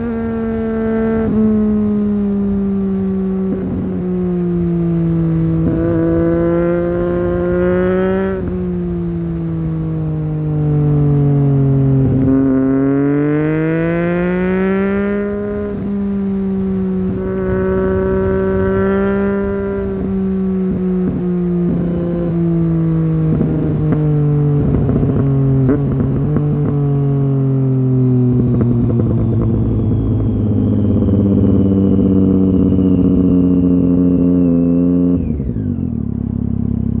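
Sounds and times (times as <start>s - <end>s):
motorcycle engine: 0.0s - 37.0s.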